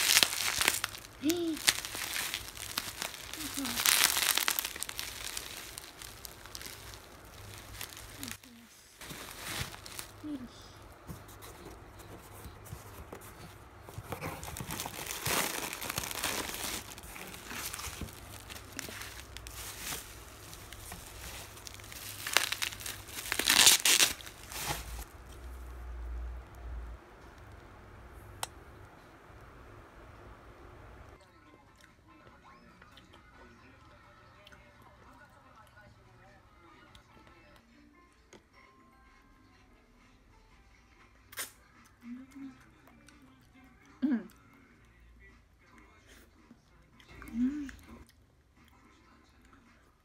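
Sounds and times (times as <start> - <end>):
bubble wrap crinkling: 0.0 - 26.2.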